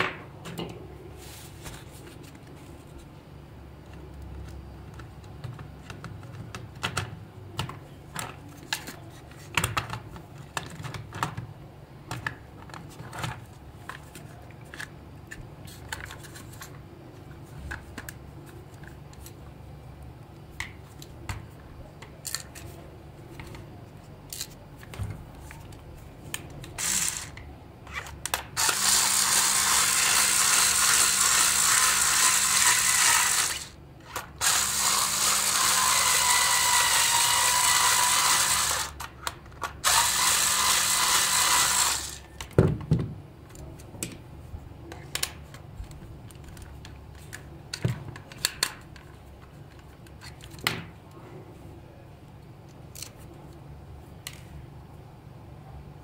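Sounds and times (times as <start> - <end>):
electric screwdriver whirring: 26.8 - 27.4, 28.6 - 33.8, 34.4 - 39.0, 39.8 - 42.2.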